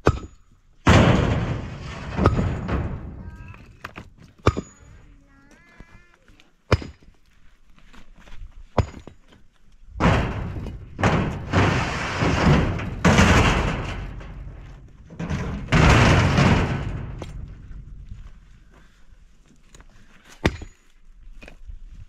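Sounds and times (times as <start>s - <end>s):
stones crashing onto steel bed: 0.0s - 5.0s, 8.8s - 9.2s, 9.9s - 18.4s, 20.4s - 20.8s
stones scraping and rattling: 1.2s - 5.0s, 7.8s - 18.4s.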